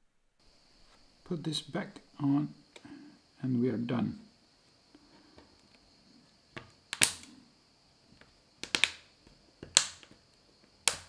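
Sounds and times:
plastic clips snapping: 0:06.9 - 0:07.3, 0:08.6 - 0:09.0, 0:09.6 - 0:10.2.

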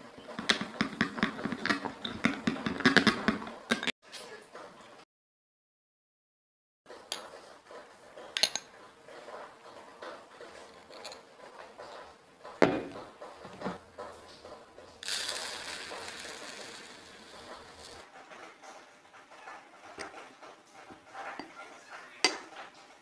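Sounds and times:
kitchenware clinking: 0:08.2 - 0:18.8, 0:19.6 - 0:22.7
plastic bowl knocked on counter: 0:12.6 - 0:13.7
breadcrumbs pouring into bowl: 0:15.0 - 0:18.1.

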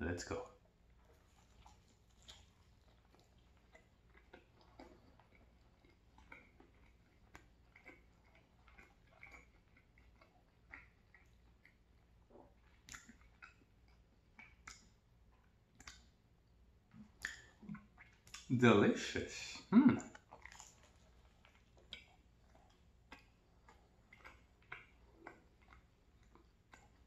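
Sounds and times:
low room hum: 0:00.0 - 0:27.0
chewing with wet mouth clicks: 0:00.5 - 0:18.6, 0:19.5 - 0:27.0.

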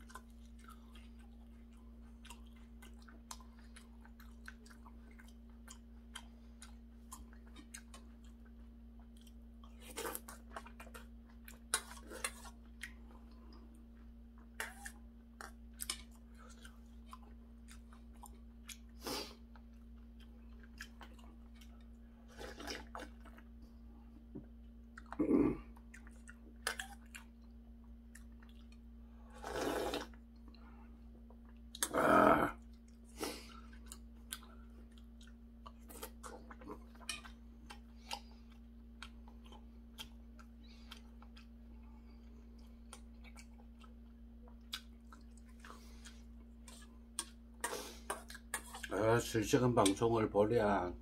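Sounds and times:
person chewing: 0:00.0 - 0:49.0
steady low hum: 0:00.0 - 0:51.0
person slurping soup: 0:29.3 - 0:30.2.

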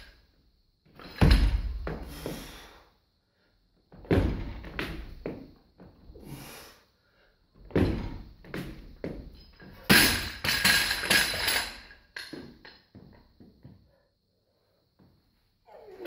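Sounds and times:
barbell thudding on rubber mats: 0:07.7 - 0:12.6
metallic clatter of bar and plates: 0:09.2 - 0:12.9.

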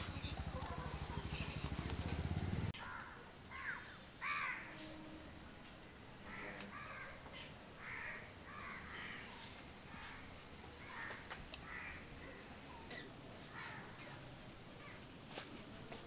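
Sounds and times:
crows cawing: 0:02.8 - 0:04.9, 0:06.2 - 0:12.4, 0:13.5 - 0:14.1.

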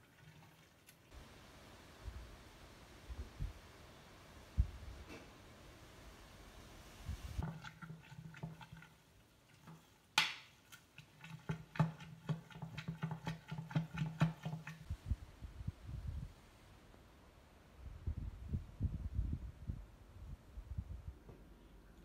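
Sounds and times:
hand mixing wet mash: 0:07.4 - 0:14.9.

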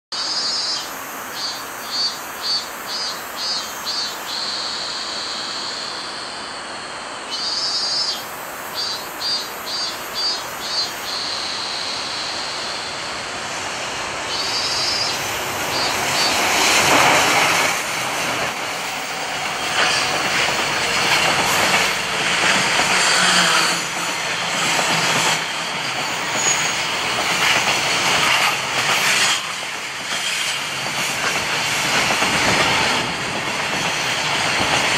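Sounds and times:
cicadas calling: 0:00.2 - 0:34.8
electric locomotive passing: 0:00.2 - 0:34.9
train wheels clicking over rail joints: 0:14.3 - 0:34.9.

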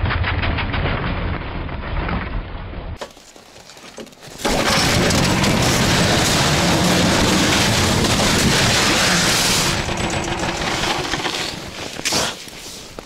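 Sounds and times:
tracked vehicle engine pulsing: 0:04.4 - 0:12.0.

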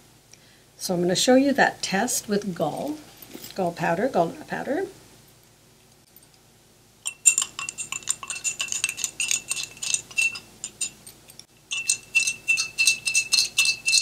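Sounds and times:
metal spoon clinking against glass: 0:07.0 - 0:14.0.

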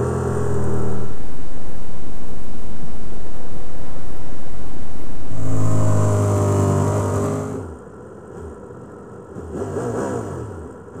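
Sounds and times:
engine throttle blips: 0:00.0 - 0:07.9
motorcycle engine running: 0:00.0 - 0:09.7.

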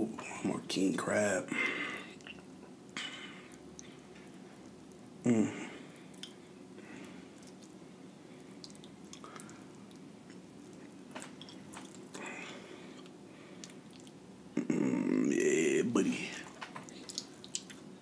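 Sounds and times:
chewing: 0:07.0 - 0:07.8, 0:08.4 - 0:14.2, 0:16.4 - 0:17.9.

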